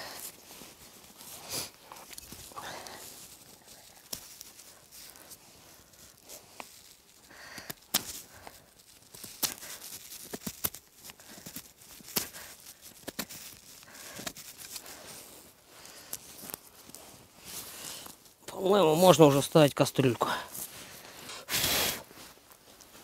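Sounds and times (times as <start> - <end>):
knife cracking dry wood: 7.5 - 8.3, 9.1 - 13.6.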